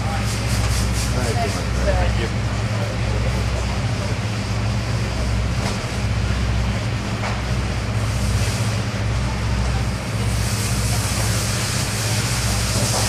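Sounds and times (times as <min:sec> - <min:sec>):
hiss: 0:00.0 - 0:01.7, 0:07.9 - 0:09.0, 0:09.8 - 0:13.0
background roar of noise: 0:00.0 - 0:13.0
low machine hum: 0:00.0 - 0:13.0.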